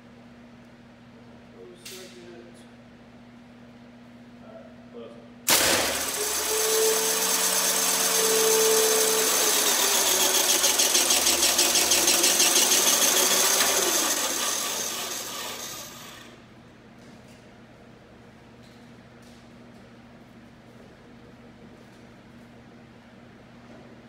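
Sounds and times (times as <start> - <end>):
motor whine: 5.5 - 16.4.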